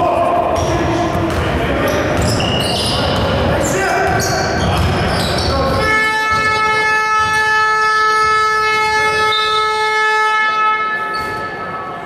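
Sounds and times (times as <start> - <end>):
arena buzzer long tone: 5.8 - 11.7.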